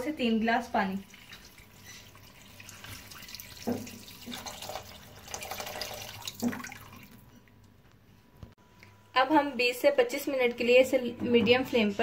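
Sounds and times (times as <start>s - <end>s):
water pouring into wok: 1.0s - 7.2s.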